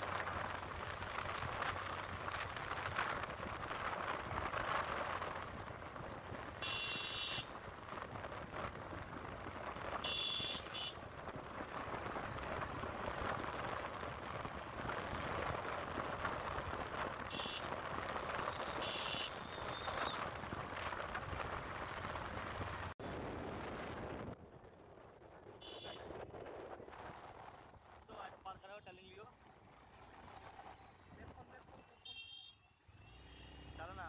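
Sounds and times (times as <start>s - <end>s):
motorbike engine and road noise: 0.0s - 34.0s
wind rushing over microphone: 7.5s - 28.2s.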